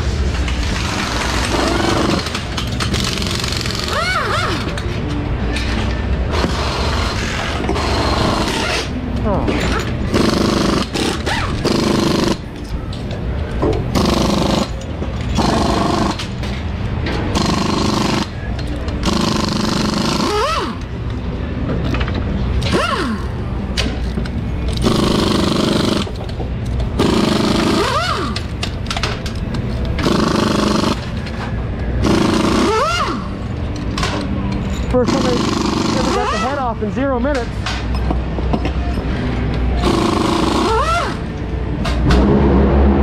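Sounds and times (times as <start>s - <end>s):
pneumatic impact wrench bursts: 0.8s - 4.8s, 6.3s - 8.9s, 9.7s - 12.5s, 13.9s - 16.2s, 17.3s - 18.4s, 19.0s - 20.9s, 22.6s - 23.4s, 24.7s - 26.2s, 27.0s - 28.6s, 30.0s - 31.1s, 32.0s - 33.4s, 35.1s - 36.4s, 39.8s - 41.2s
tool whirring up and down: 19.0s - 20.9s, 22.6s - 23.4s, 27.0s - 28.6s, 32.0s - 33.4s, 39.8s - 41.3s.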